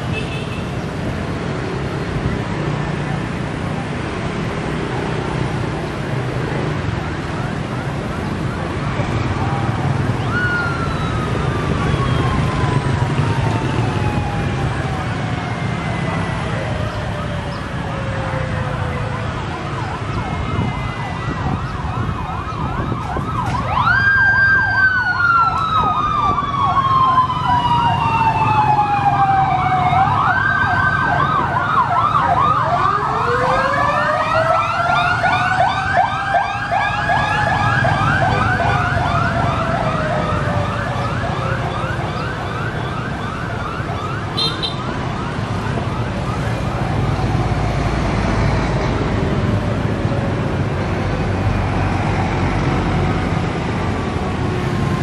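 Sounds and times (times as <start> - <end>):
motorbike and traffic engines rumbling: 0.0 - 55.0
sirens wailing: 0.0 - 55.0
siren yelping: 7.2 - 47.9.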